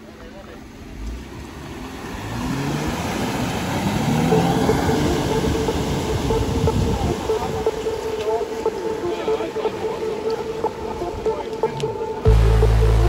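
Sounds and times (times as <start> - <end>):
tyres splashing through mud: 0.6 - 6.3
engine revving: 0.6 - 8.0, 12.0 - 13.0.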